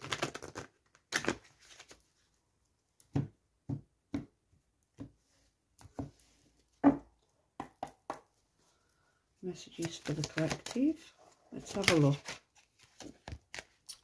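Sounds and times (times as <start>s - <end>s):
cards being shuffled: 0.0s - 2.0s, 9.7s - 14.0s.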